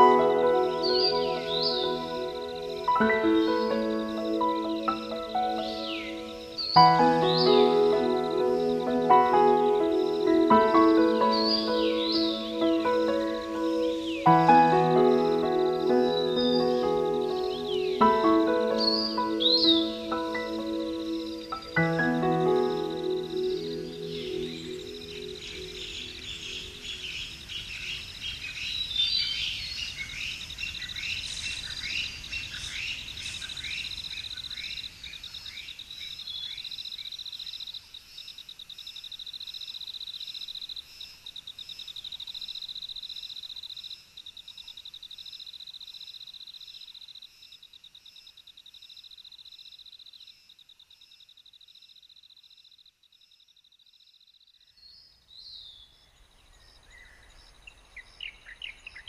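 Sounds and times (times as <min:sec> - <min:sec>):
birds chirping: 0:00.0 - 0:37.6
insect trill: 0:00.0 - 0:59.0.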